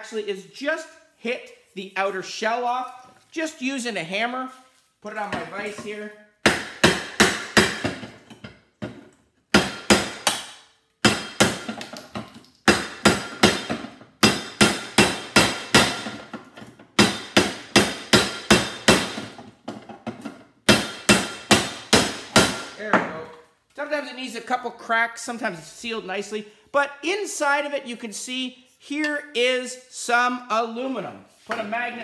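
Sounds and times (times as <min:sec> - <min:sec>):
hammer striking metal: 0:12.7 - 0:16.2, 0:17.0 - 0:19.3, 0:20.7 - 0:22.8.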